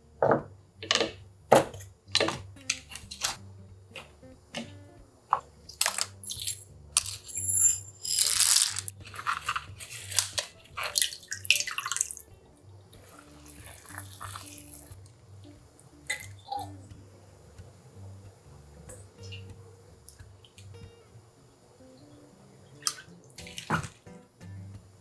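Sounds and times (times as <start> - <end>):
soft background music: 0.0 - 25.0
water pouring and splashing: 8.2 - 12.3, 13.0 - 15.0, 22.8 - 24.0.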